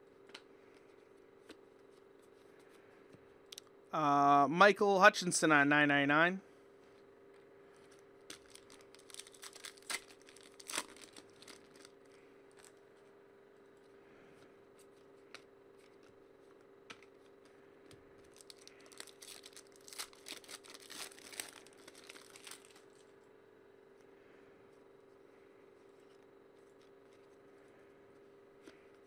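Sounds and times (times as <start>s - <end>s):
faint steady hum: 0.0s - 29.0s
card pack wrappers crackling: 8.2s - 12.8s, 18.2s - 23.0s.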